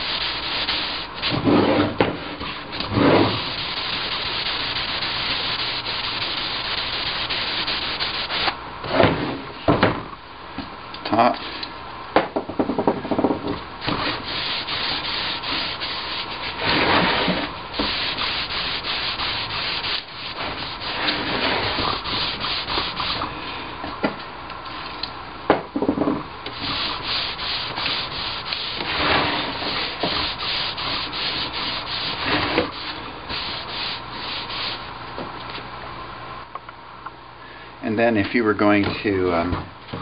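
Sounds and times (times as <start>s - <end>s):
paper towel rubbing wood: 0.0s - 1.7s, 2.8s - 8.5s, 13.8s - 23.3s, 26.5s - 34.9s.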